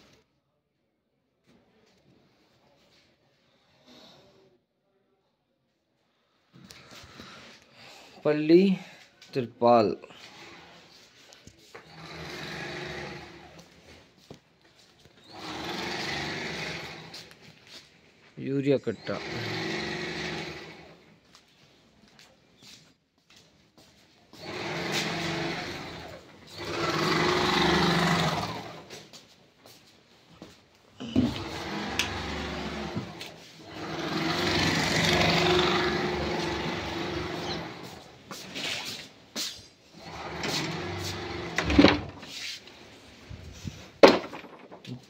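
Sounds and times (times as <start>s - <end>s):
sewing machine humming: 11.9s - 13.6s, 15.3s - 17.3s, 19.0s - 21.0s, 24.4s - 28.9s, 31.0s - 38.2s, 40.0s - 42.1s.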